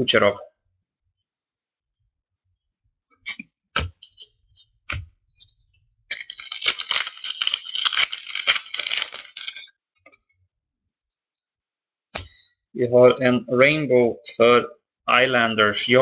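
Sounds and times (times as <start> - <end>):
plastic wrapper crackling: 6.1 - 9.7.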